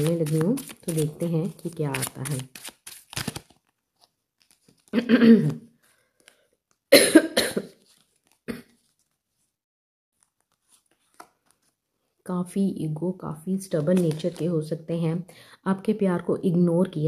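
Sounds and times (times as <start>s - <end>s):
woman clearing her throat: 5.0s - 5.6s, 7.0s - 7.7s
woman coughing: 5.0s - 5.6s, 6.9s - 7.8s.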